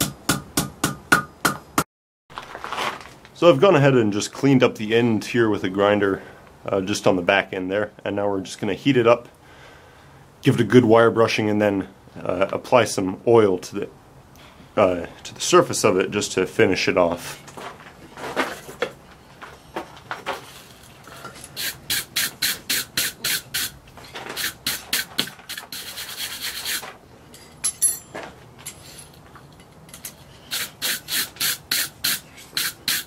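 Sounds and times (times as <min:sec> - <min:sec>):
wire brush scrubbing steel: 0:21.2 - 0:27.0, 0:30.4 - 0:33.0.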